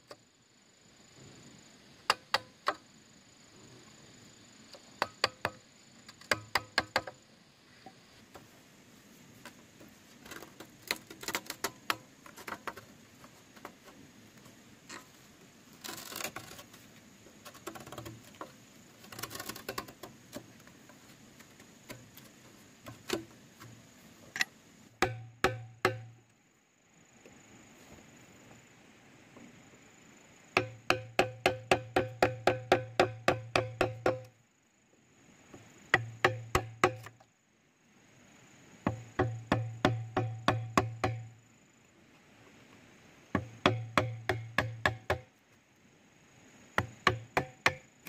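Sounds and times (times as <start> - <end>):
knocks and clacks on bamboo: 2.1 - 2.8, 5.0 - 7.2, 9.4 - 15.1, 15.8 - 16.8, 17.4 - 26.2, 30.6 - 34.4, 35.9 - 37.3, 38.8 - 41.3, 43.3 - 45.3, 46.8 - 48.0.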